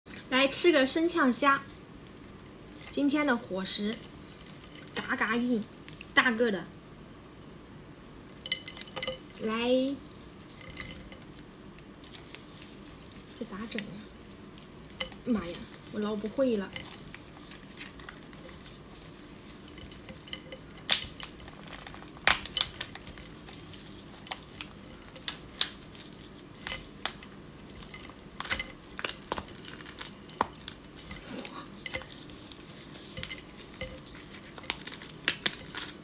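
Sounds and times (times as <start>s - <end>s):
lobster shell cracking: 19.7s - 23.3s, 26.6s - 31.2s, 34.1s - 36.0s.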